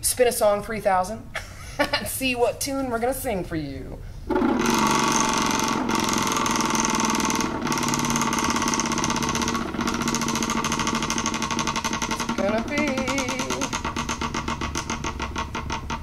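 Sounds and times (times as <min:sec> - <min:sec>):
prize wheel clicking rattle: 0:04.3 - 0:15.9.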